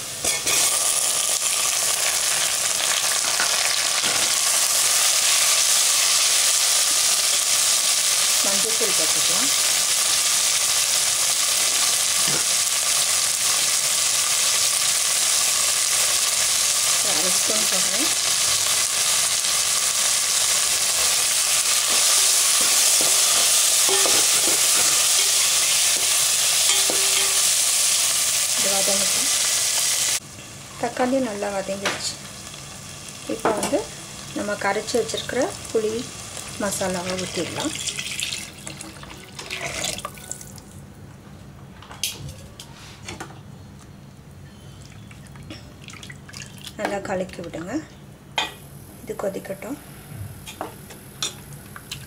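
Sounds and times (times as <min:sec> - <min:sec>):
vegetables sizzling in oil: 0:00.0 - 0:40.2
metal ladle scraping pot: 0:39.4 - 0:40.0.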